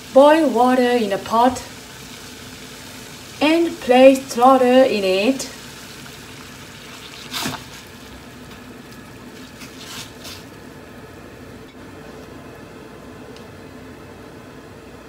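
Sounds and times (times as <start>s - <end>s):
water boiling in pot: 0.0s - 11.8s.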